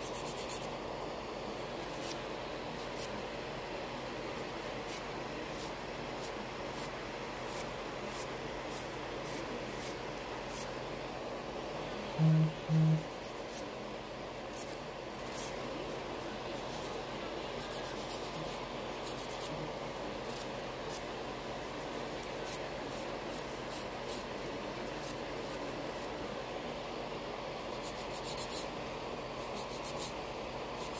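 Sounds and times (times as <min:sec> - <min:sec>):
nail file scraping fingernail: 0:00.0 - 0:00.8, 0:14.5 - 0:15.6, 0:17.6 - 0:19.6, 0:20.2 - 0:21.1, 0:27.6 - 0:28.7, 0:29.4 - 0:30.9
dust collector fan whirring: 0:00.0 - 0:30.9.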